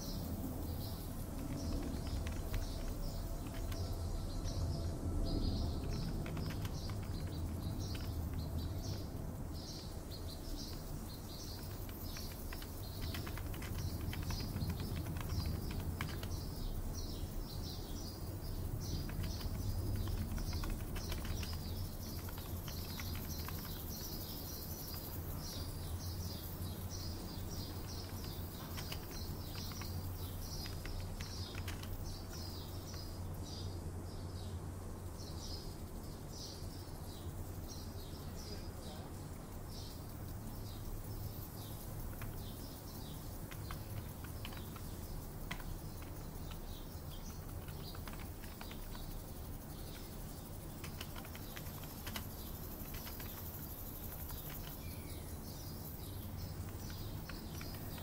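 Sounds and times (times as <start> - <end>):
small birds chirping: 0.0 - 58.0
steady low hum: 0.0 - 58.0
keyboard typing clicks: 1.3 - 4.6, 5.5 - 9.1, 10.5 - 16.5, 18.8 - 25.1, 27.4 - 33.2, 42.0 - 49.2, 50.7 - 55.2, 56.0 - 58.0.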